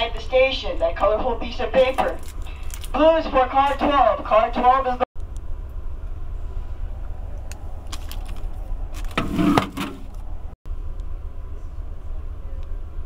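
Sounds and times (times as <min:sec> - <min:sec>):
train car rumble: 0:00.0 - 0:13.0
seat rattling clatter: 0:07.8 - 0:10.2.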